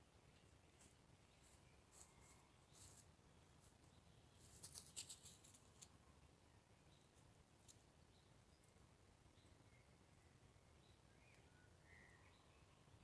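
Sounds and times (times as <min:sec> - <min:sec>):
faint crisp ticks and rustles: 0:00.2 - 0:06.3, 0:06.9 - 0:08.9.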